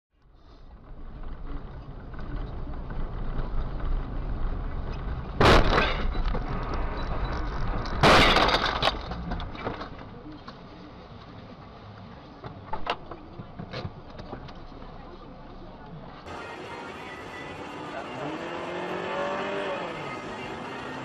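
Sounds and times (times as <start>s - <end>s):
car road noise: 0.2s - 21.0s
vehicle crash impacts: 5.0s - 10.1s.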